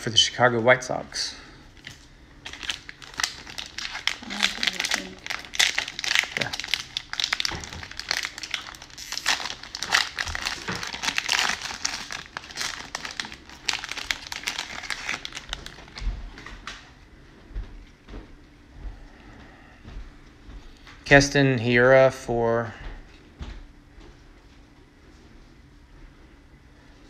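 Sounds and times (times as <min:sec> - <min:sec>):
handling cards: 0:01.8 - 0:16.0
cellophane wrapper crinkling: 0:01.8 - 0:16.7.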